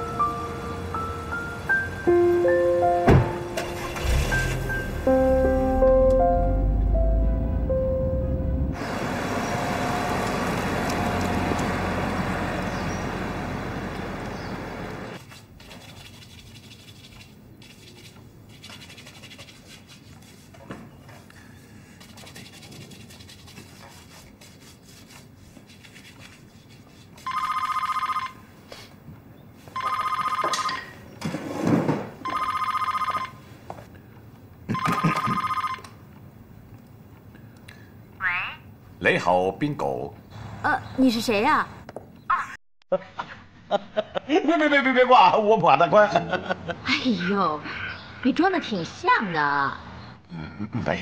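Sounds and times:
music: 0:00.0 - 0:08.8
telephone ringing: 0:27.3 - 0:28.5, 0:29.8 - 0:31.0, 0:32.2 - 0:33.5, 0:34.7 - 0:36.0.

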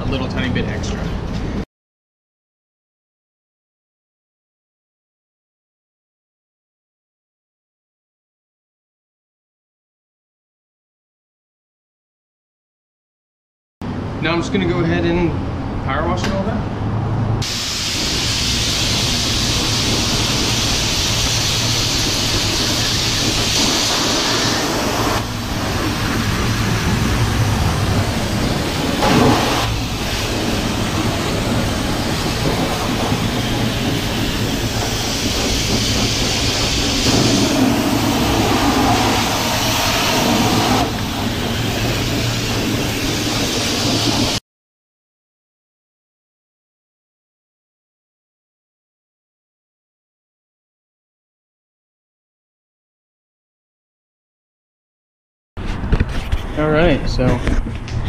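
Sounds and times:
pressure washer jet spraying: 0:17.4 - 0:44.4.

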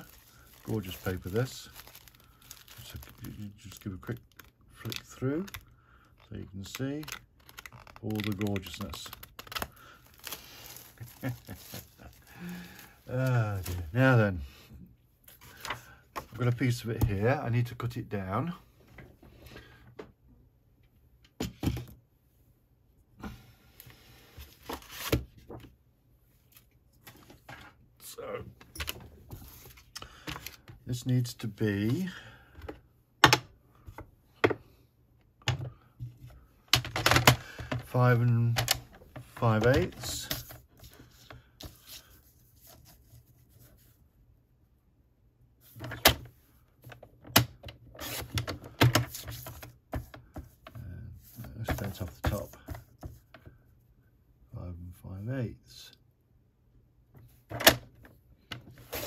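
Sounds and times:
paper rustling: 0:00.0 - 0:14.0, 0:48.0 - 0:50.6.

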